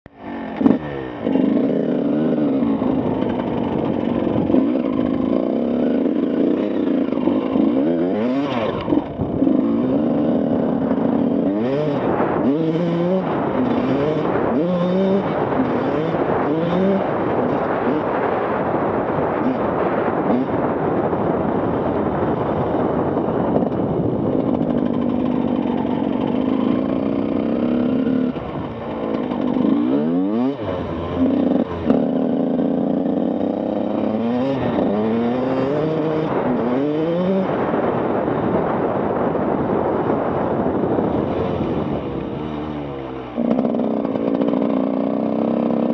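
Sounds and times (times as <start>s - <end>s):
motocross engine revving: 0.2s - 18.6s, 24.5s - 37.8s.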